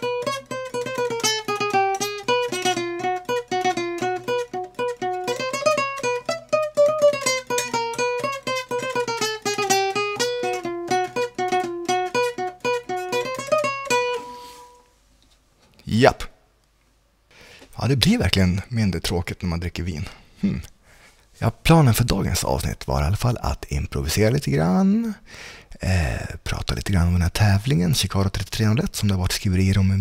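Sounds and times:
toy guitar picked melody: 0.0 - 14.8.

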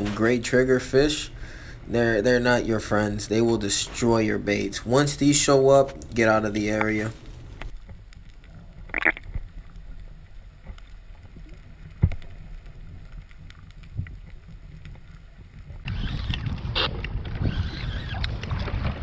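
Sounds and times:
wind buffeting microphone: 15.7 - 19.0.

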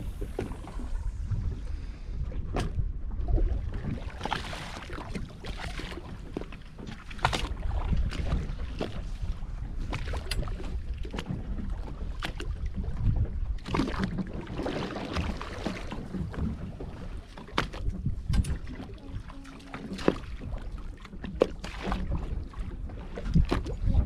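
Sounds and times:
water against boat hull: 0.0 - 24.0
wind rumble on microphone: 0.0 - 24.0
clicks and knocks from boat: 2.4 - 24.0.

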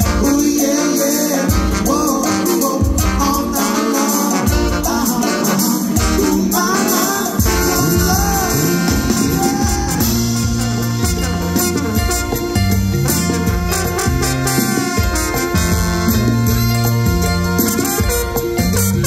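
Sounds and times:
person singing: 0.0 - 10.4
live band playing latin ska: 0.0 - 19.0.

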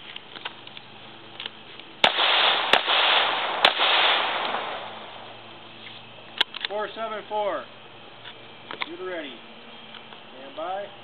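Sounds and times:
gunshots with hissing echo: 2.0 - 5.3.

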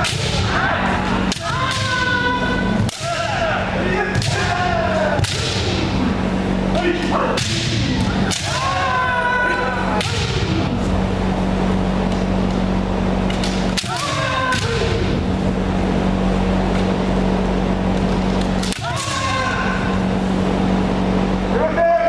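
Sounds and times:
people shouting: 0.0 - 10.8, 13.8 - 15.3, 18.6 - 20.1, 21.5 - 22.0.

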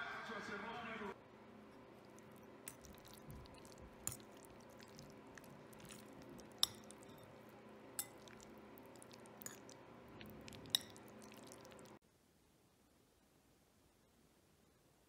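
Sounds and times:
faint steady hum: 1.0 - 15.0
wet scraping of noodles: 1.6 - 12.0
fork clinking against bowl: 1.7 - 9.8, 10.6 - 11.5.

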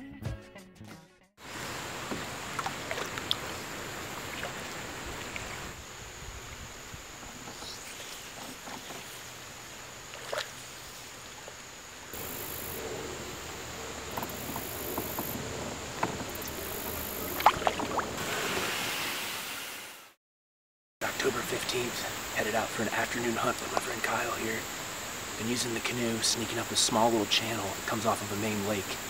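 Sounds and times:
paddles splashing in water: 1.4 - 19.6
water dripping: 2.0 - 5.8.

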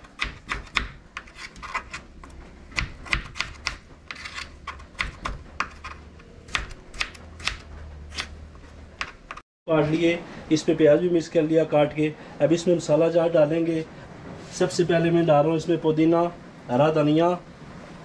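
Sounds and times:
knife slicing potatoes on board: 0.0 - 8.4, 9.0 - 9.4.

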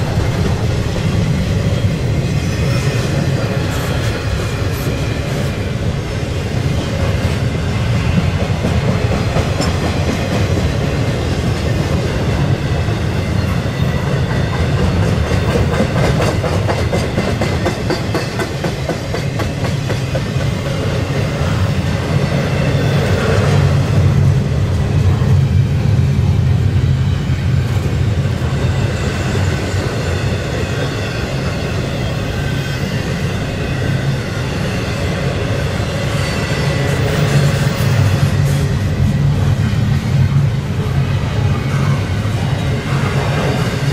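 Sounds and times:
wheels clacking over rail joints: 6.6 - 21.9.

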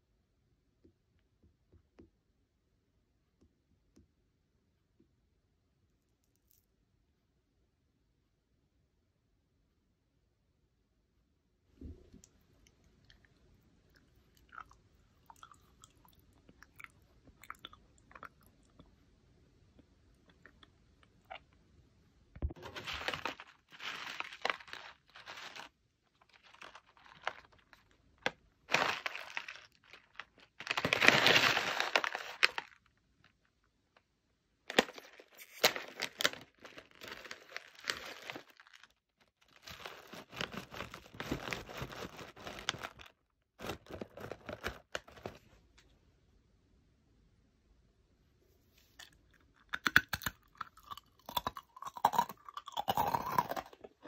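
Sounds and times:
plastic pouch crinkling and tearing: 22.6 - 28.0, 28.7 - 32.8, 34.7 - 45.4.

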